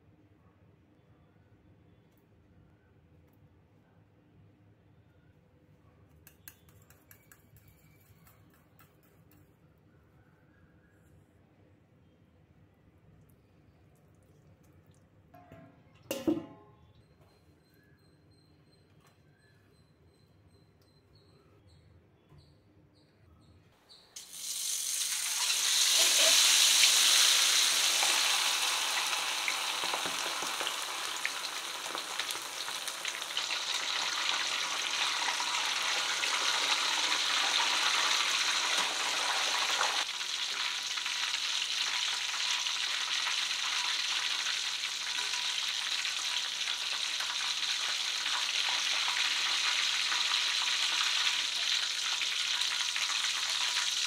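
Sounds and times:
chicken sizzling in hot oil: 0:24.2 - 0:54.0.

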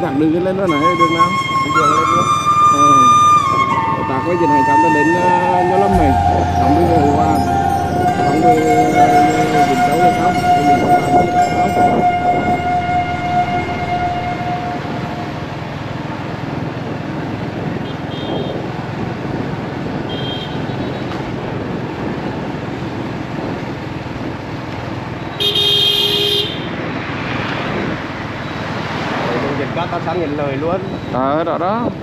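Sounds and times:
road traffic: 0:00.0 - 0:32.0
vehicle horn honking: 0:05.9 - 0:15.6, 0:17.8 - 0:18.6, 0:20.1 - 0:21.0, 0:25.4 - 0:26.7.

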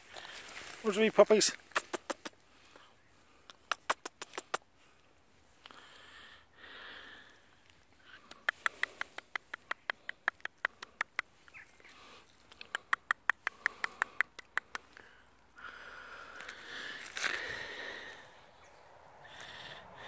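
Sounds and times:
puppies sniffing: 0:01.6 - 0:02.4, 0:08.2 - 0:11.2, 0:12.6 - 0:15.0
quick sharp clicks: 0:01.6 - 0:02.4, 0:03.5 - 0:04.7, 0:08.2 - 0:11.3, 0:12.5 - 0:15.0.

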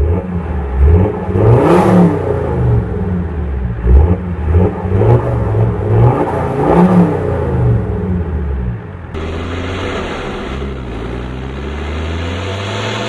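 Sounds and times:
diesel engine revving: 0:00.0 - 0:13.0.

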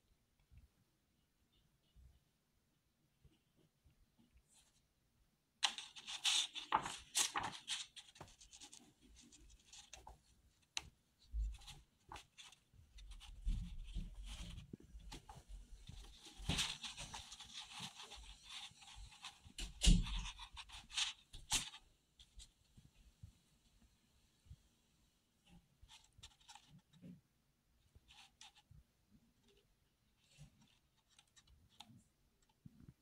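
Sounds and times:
paper rustling and rubbing: 0:05.6 - 0:10.8, 0:11.4 - 0:22.4.

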